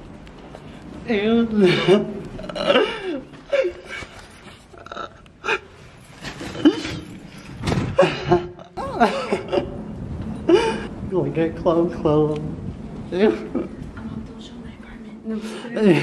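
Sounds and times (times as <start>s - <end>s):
people gasping: 2.6s - 7.2s
people laughing: 8.0s - 9.9s.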